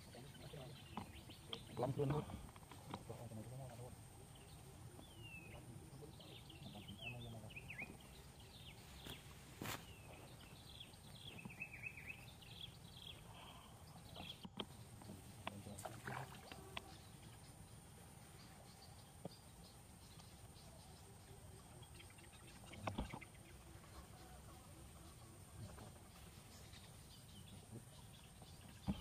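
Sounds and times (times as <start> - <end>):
high falling chirping calls: 4.4 - 15.0.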